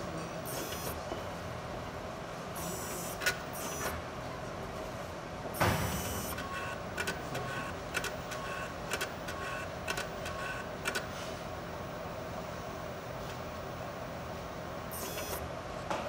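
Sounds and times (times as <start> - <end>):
steady hum: 0.0 - 15.8
quick mechanical clicks: 5.9 - 11.1.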